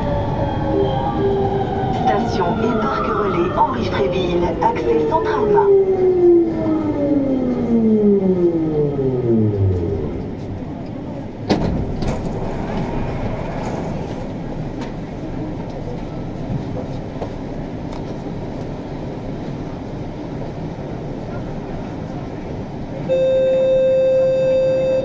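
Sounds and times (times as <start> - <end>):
train equipment hum: 0.0 - 25.0
door warning beep: 23.1 - 25.0.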